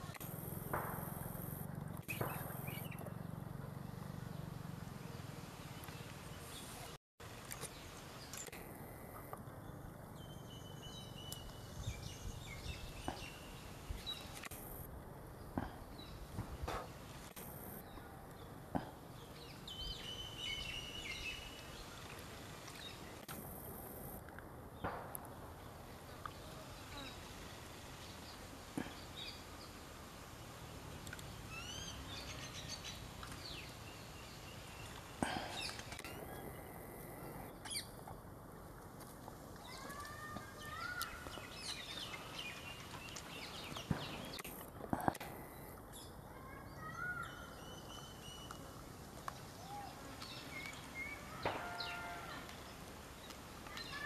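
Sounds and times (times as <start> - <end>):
birds chirping: 0.0 - 24.2, 25.6 - 38.2, 39.6 - 54.0
low outdoor background: 0.0 - 54.0
high whistled bird calls: 31.5 - 33.0.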